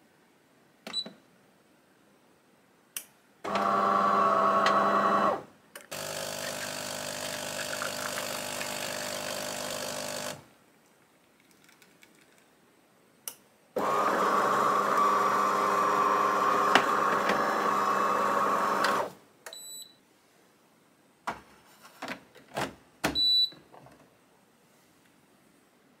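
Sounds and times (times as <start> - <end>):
coffee machine motor whirring: 5.9 - 10.4, 13.8 - 19.1.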